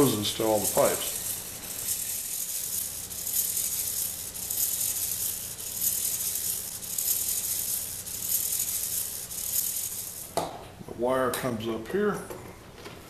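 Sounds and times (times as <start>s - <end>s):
servos whirring: 0.0s - 10.4s
steady low hum: 0.0s - 11.2s.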